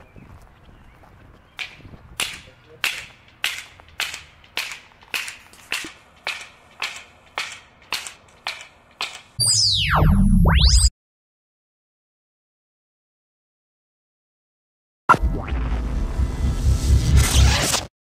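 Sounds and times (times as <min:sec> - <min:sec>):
footsteps crunching on gravel: 0:00.0 - 0:06.2.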